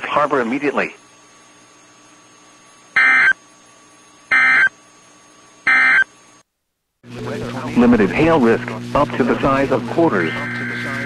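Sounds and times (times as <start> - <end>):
radio hiss and hum: 0.0 - 4.7, 7.0 - 11.0
buzzy digital data tones: 3.0 - 3.4, 4.3 - 4.7, 5.7 - 6.1, 7.2 - 11.0.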